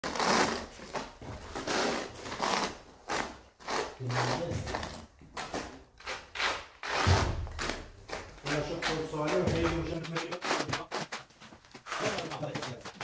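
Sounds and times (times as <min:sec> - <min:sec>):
trowel scraping adhesive on concrete: 0:08.5 - 0:13.0.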